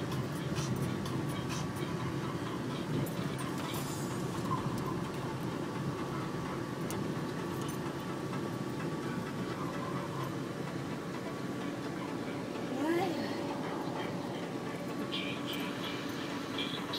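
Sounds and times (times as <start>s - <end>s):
car engine and tyre rumble: 0.0s - 16.9s.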